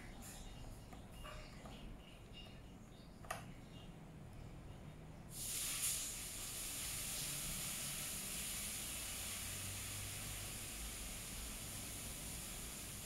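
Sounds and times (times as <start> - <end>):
steady high hiss: 5.3 - 13.0.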